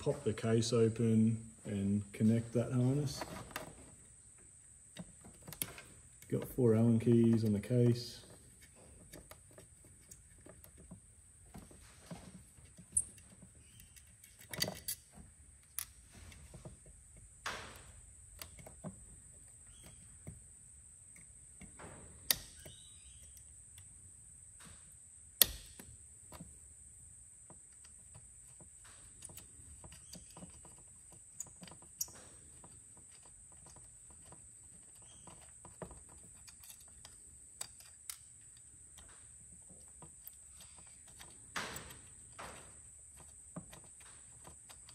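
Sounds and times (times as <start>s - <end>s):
allen key turning screws: 4.9s - 11.0s, 12.6s - 16.5s, 27.6s - 44.9s.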